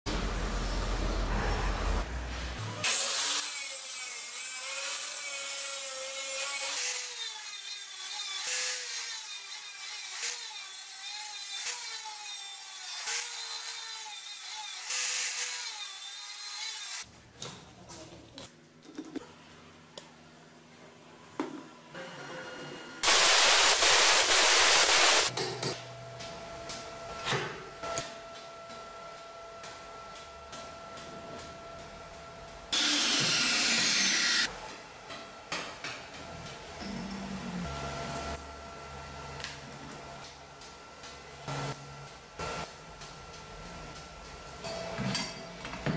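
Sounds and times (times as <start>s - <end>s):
angle grinder grinding metal: 2.7s - 17.0s, 23.0s - 25.3s, 32.7s - 34.5s
chop saw cutting steel: 2.7s - 17.0s, 32.7s - 34.5s.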